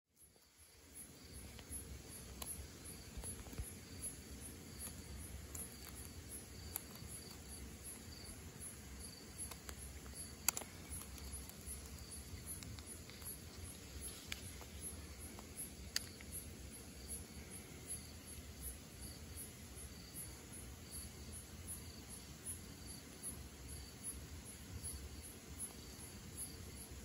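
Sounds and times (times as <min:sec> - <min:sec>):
crickets chirping: 0:00.1 - 0:27.0
faint clicks: 0:04.8 - 0:08.1, 0:09.3 - 0:16.4.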